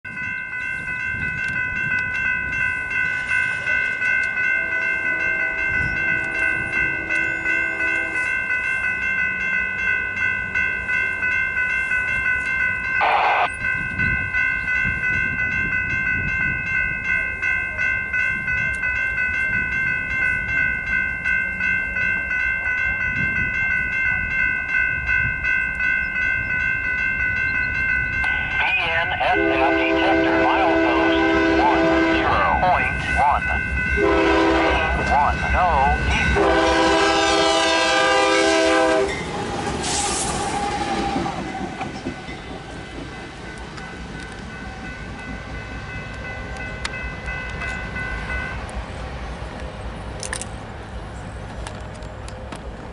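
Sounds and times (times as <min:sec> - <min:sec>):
crossing warning bell dinging: 0:00.0 - 0:52.9
distant train horn: 0:04.6 - 0:08.3, 0:29.0 - 0:33.4, 0:34.0 - 0:39.2.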